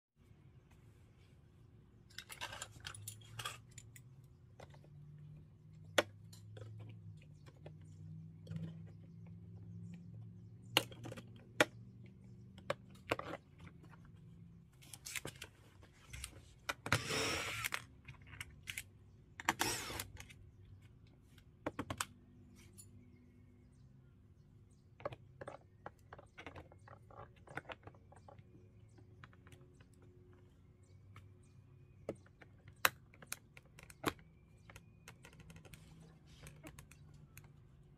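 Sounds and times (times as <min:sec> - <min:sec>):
cordless driver running: 0:16.9 - 0:17.8, 0:19.6 - 0:20.1.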